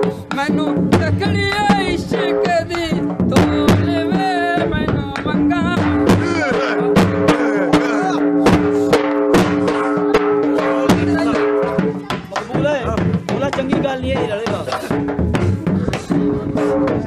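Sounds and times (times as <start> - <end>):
steady drum beat: 0.0 - 17.0
wavering melody: 5.3 - 12.0.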